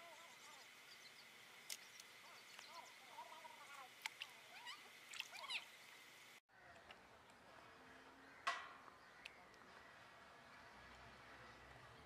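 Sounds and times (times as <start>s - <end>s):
small birds chirping: 0.0s - 6.0s.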